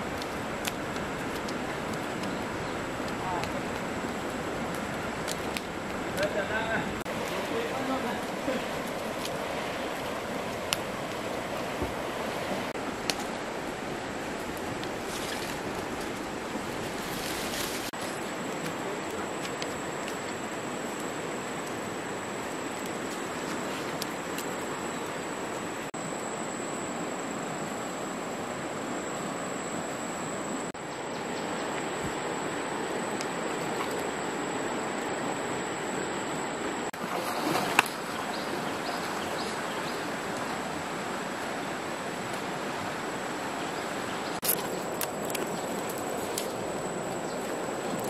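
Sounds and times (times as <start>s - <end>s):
wood fire crackling: 0.0s - 17.0s
stream flowing: 0.0s - 48.0s.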